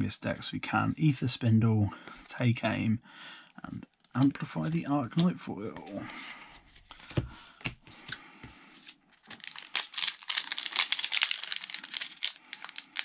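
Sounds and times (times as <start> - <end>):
cards knocking: 6.9 - 8.2
foil wrapper crinkling: 9.2 - 13.0.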